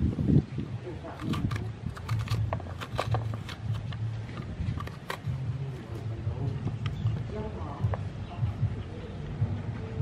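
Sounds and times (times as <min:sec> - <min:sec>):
spoon scraping pumpkin: 0:01.1 - 0:06.1.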